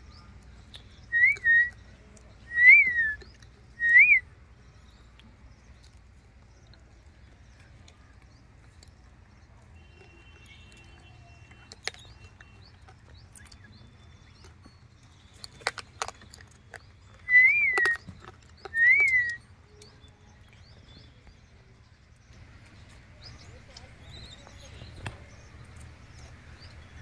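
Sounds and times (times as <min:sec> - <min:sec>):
loud whistled notes: 0:17.3 - 0:18.0, 0:18.8 - 0:19.4.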